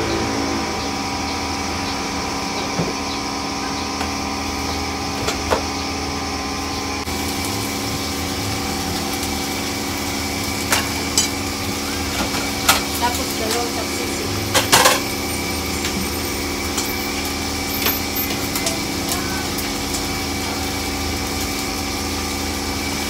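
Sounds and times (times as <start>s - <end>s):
meat sizzling in hot oil: 0.0s - 23.0s
stove mechanical hum: 0.0s - 23.0s.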